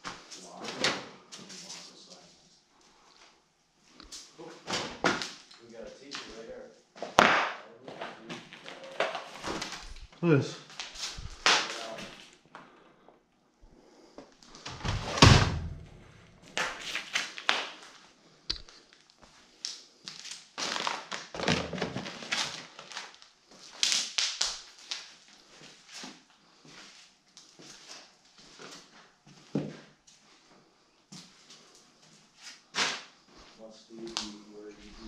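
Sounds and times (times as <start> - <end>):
heavy thud: 14.8 - 16.3.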